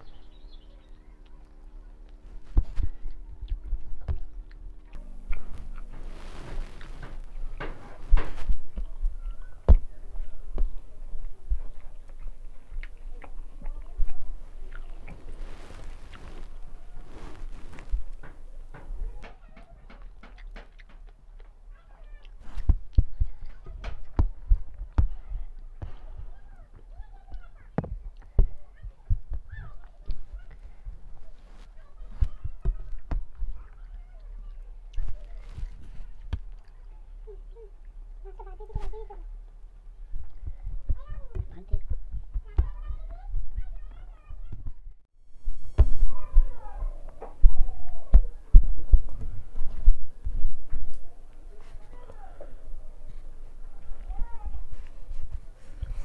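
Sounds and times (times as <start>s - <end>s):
fingers squishing rice on a plate: 0.0s - 39.2s
steady low hum: 0.0s - 56.0s
chewing: 0.3s - 39.1s
soft clicks and low thumps: 22.5s - 30.7s, 40.1s - 43.8s, 47.1s - 51.1s.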